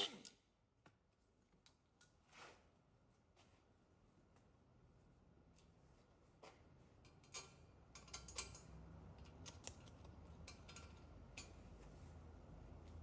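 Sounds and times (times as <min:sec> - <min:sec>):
metallic clicks of bolt and nut: 0:07.0 - 0:11.7.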